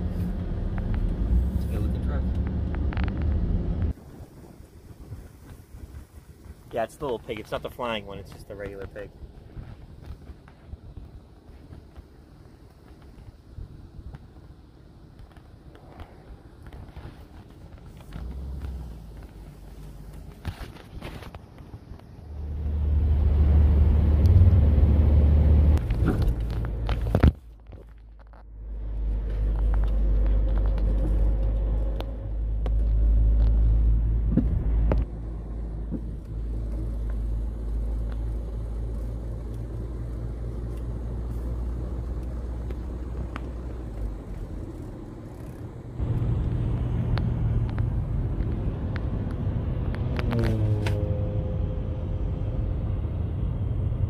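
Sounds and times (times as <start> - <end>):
car road rumble: 0.0 - 54.0
passing traffic drone: 21.9 - 27.0, 28.5 - 54.0.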